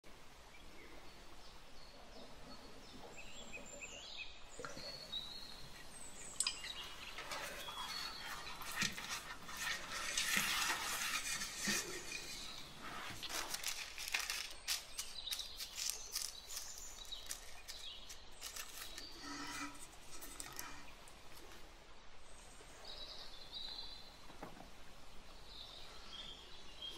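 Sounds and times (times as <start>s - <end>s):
pastry brush strokes in metal tin: 6.4s - 20.9s.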